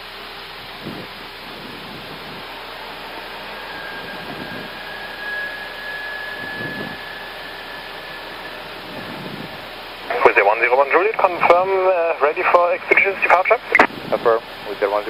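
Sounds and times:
cockpit airflow rush: 0.0s - 15.0s
thin high tone: 0.6s - 13.8s.

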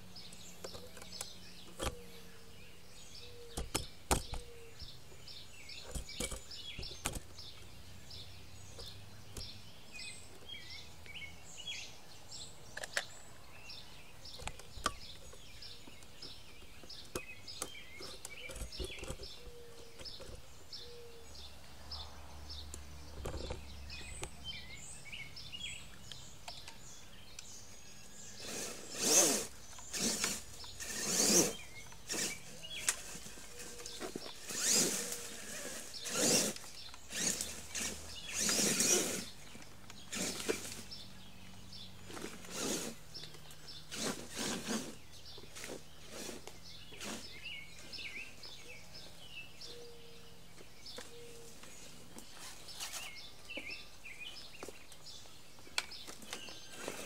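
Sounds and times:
sharp clicks and knocks: 3.5s - 4.5s, 5.8s - 7.7s, 14.3s - 20.5s, 22.7s - 24.4s.

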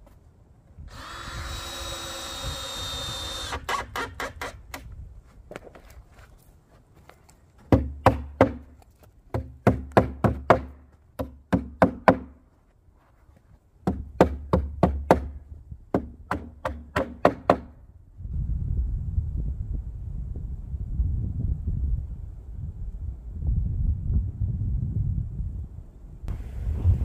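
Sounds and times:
wind rumbling on microphone: 0.5s - 3.5s, 4.2s - 6.3s, 15.3s - 16.3s, 17.7s - 27.0s
hammer striking nails into wood: 7.7s - 12.4s, 13.8s - 17.8s.

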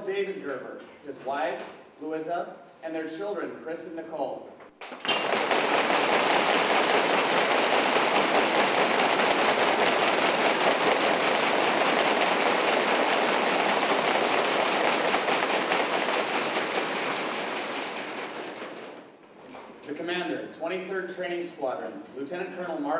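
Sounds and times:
audience applauding: 4.8s - 19.2s.

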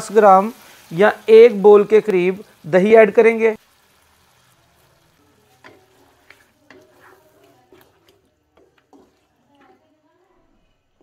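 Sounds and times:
wooden spatula scraping pan: 5.4s - 11.0s.

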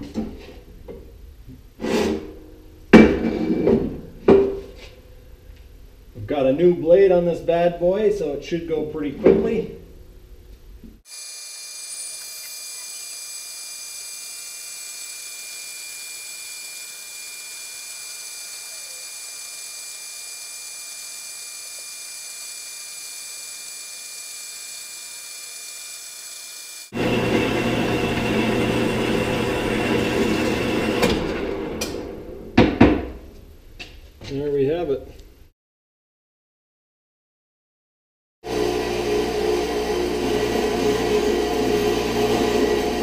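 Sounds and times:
bandsaw cutting steel: 11.0s - 32.1s, 38.5s - 43.0s.

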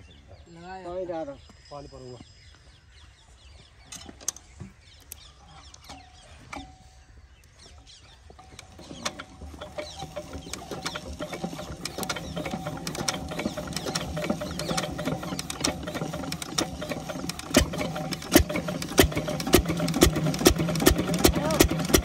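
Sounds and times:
diesel engine cranked by hand: 5.1s - 7.1s, 7.7s - 22.0s
diesel engine firing: 8.4s - 22.0s.

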